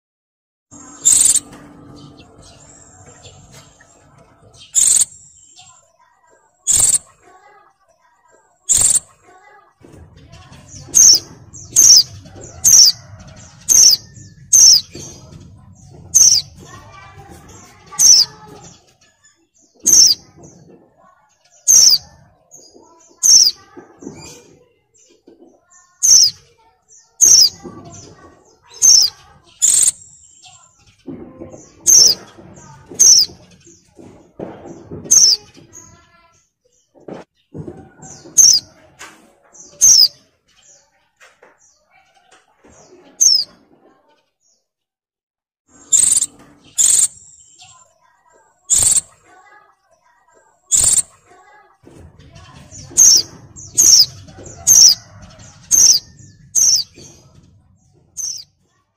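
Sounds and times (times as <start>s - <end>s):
bird faint chirps: 0.8s - 7.2s, 7.9s - 9.1s, 17.5s - 33.9s, 45.8s - 49.2s, 50.0s - 51.2s.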